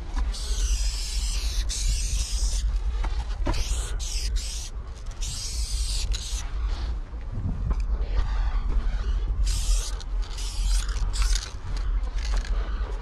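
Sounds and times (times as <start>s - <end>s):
constant low rumble: 0.0s - 13.0s
spray paint can hissing: 0.4s - 2.6s, 3.6s - 6.4s, 9.4s - 11.5s.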